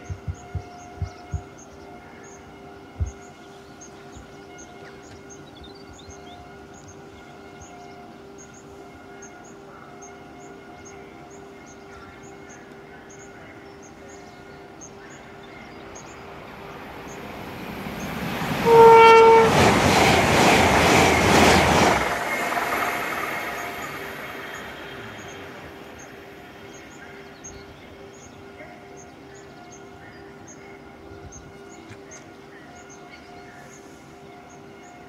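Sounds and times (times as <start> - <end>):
train passing at speed: 0.0 - 35.0
train horn blast: 18.4 - 26.4.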